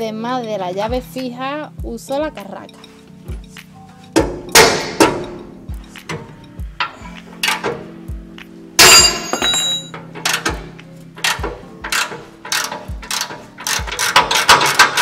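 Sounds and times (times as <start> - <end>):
music with steady beat: 0.0 - 15.0
ringing metal clang: 8.8 - 10.4
ratchet wrench clicking: 10.2 - 15.0.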